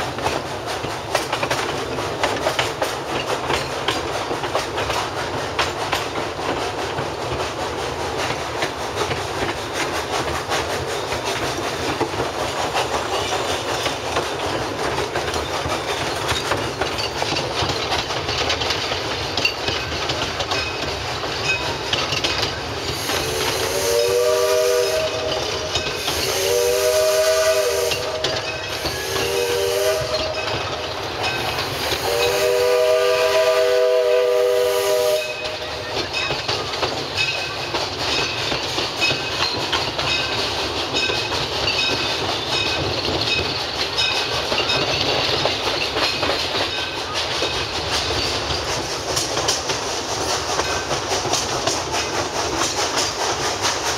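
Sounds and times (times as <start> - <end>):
train running noise: 0.0 - 53.9
wheels clicking over rail joints: 0.0 - 53.9
steam locomotive whistle: 23.0 - 30.7, 31.7 - 36.0.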